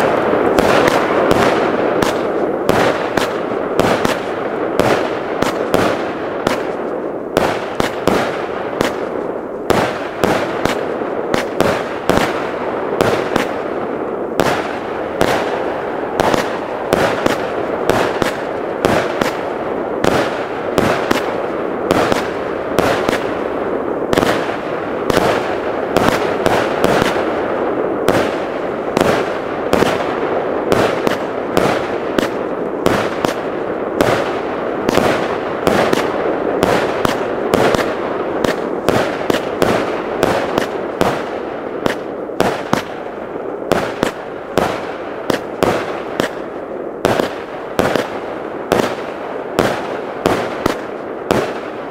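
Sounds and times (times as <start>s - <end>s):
continuous rushing noise: 0.0s - 51.9s
fireworks sharp bangs: 0.0s - 51.9s.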